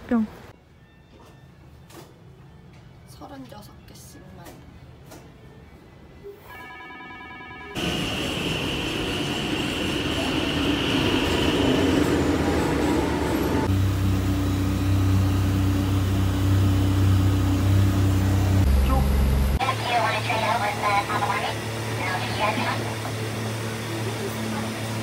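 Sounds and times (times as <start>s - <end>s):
ferry engine drone: 7.5s - 25.0s
train rushing past with whine: 7.5s - 25.0s.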